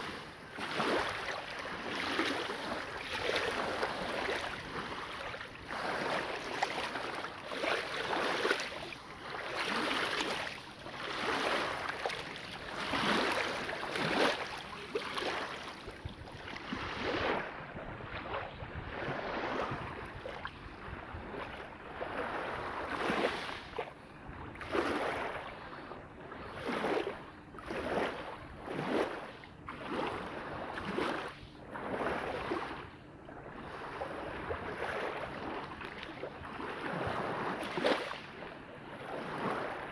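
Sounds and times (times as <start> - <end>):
waves lapping on shingle: 0.0 - 39.9.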